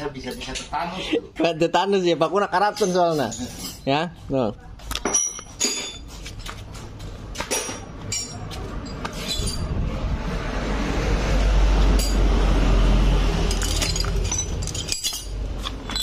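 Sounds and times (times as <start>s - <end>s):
metal hand tools clinking: 7.5s - 9.7s, 13.5s - 16.0s
low rumbling noise: 8.6s - 15.6s.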